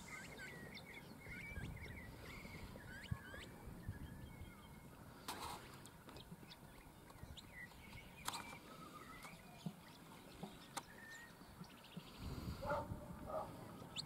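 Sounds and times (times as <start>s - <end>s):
birds chirping: 0.0s - 14.0s
wind rumble on microphone: 1.1s - 5.0s, 12.2s - 14.0s.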